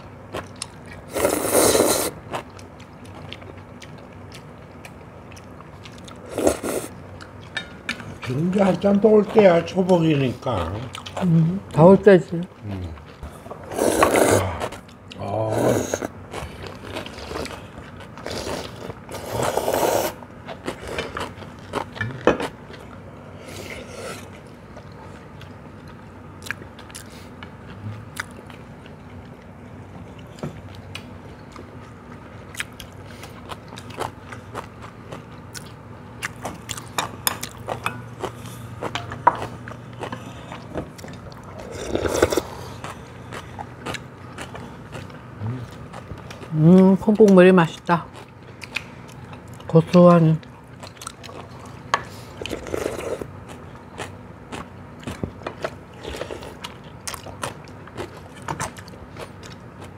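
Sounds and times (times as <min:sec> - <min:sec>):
people chewing: 0:00.0 - 0:59.9
people slurping noodles: 0:01.1 - 0:02.2, 0:13.6 - 0:16.1, 0:18.2 - 0:20.2, 0:41.5 - 0:42.8, 0:52.2 - 0:53.3.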